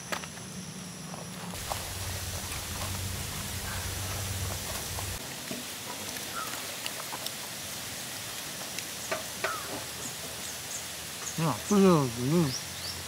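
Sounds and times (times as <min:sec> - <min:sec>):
steady high hiss: 0:00.3 - 0:13.0
low hum: 0:01.6 - 0:05.2.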